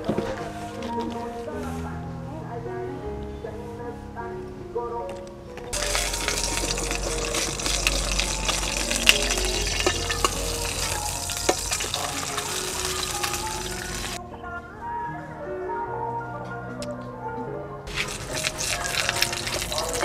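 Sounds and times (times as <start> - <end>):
background music: 0.0 - 20.0
egg frying in oil: 5.8 - 14.2, 17.9 - 20.0.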